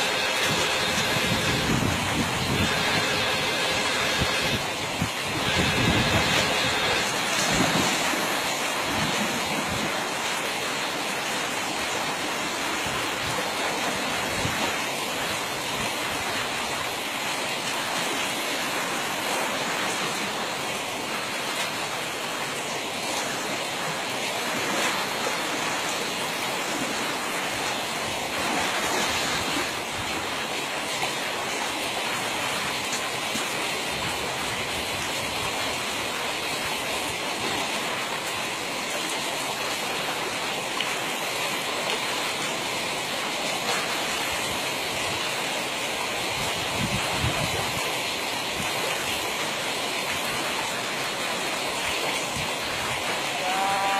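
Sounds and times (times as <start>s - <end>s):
fast-flowing stream rushing: 0.0s - 53.9s
wind buffeting microphone: 0.4s - 3.3s.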